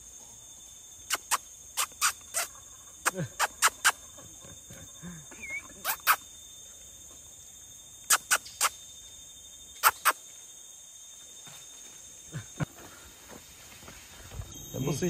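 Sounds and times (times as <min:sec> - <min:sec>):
high-pitched insect drone: 0:00.0 - 0:15.0
sharp short clicks or chirps: 0:01.1 - 0:04.0, 0:08.1 - 0:08.8, 0:09.8 - 0:10.2.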